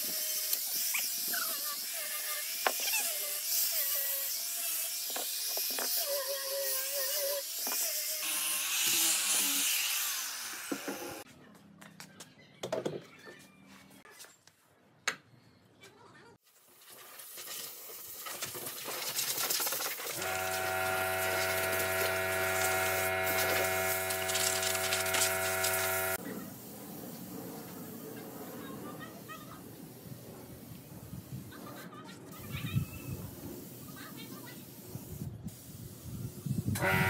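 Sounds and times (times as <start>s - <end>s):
angle grinder sanding wood: 20.2s - 26.2s.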